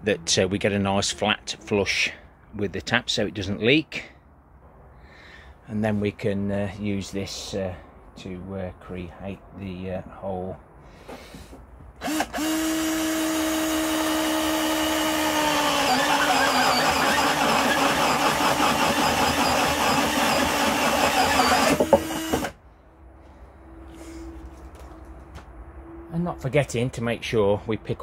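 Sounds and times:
cordless drill boring through plastic: 12.0 - 22.6.

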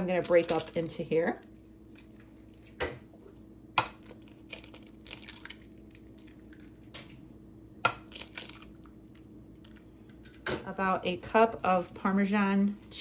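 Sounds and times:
eggs cracked on glass bowl: 3.8 - 7.2, 7.8 - 8.8
eggshell crackling: 3.8 - 7.2, 7.8 - 10.4.

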